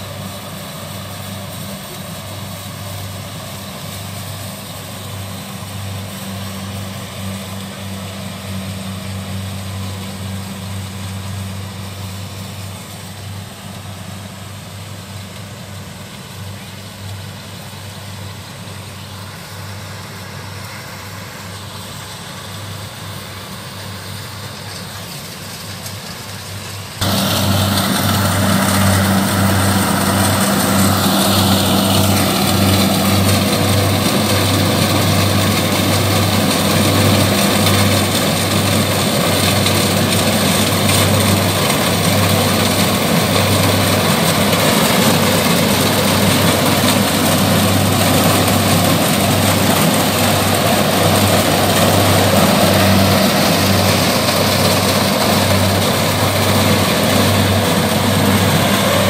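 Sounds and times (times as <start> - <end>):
combine harvester diesel engine: 0.0 - 59.0
machinery rattle: 24.1 - 59.0
high whine dropping in pitch: 27.0 - 37.2.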